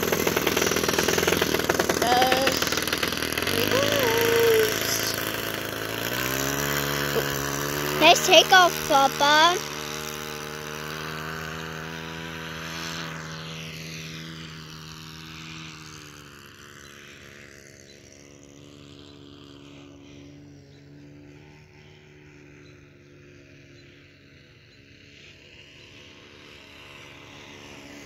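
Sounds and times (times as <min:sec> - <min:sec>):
model airplane engine droning: 0:00.0 - 0:28.0.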